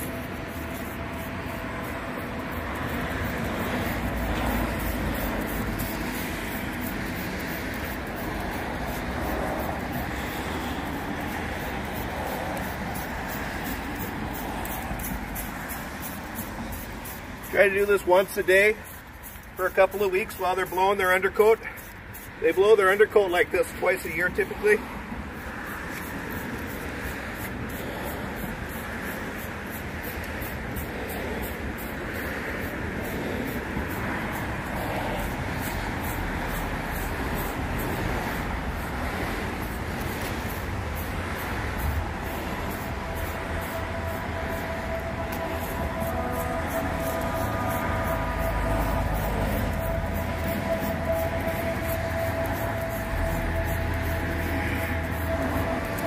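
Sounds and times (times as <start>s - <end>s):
blade raking through dog fur: 0.0s - 24.2s
road traffic rumble: 0.0s - 56.0s.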